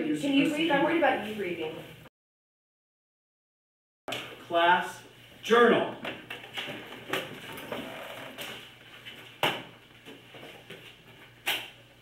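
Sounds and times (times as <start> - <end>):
knocks on desks: 9.4 - 9.8.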